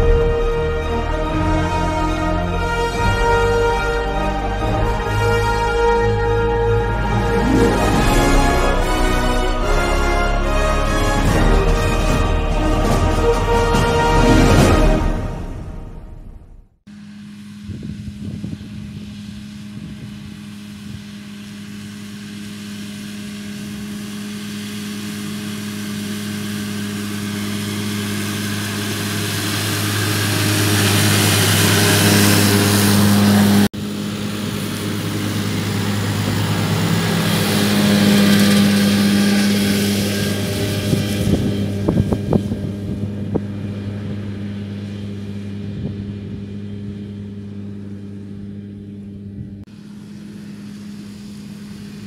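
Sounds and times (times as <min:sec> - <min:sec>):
cutter discs whirring: 0:16.9 - 0:47.0
tractor diesel engine under load: 0:17.5 - 0:52.0.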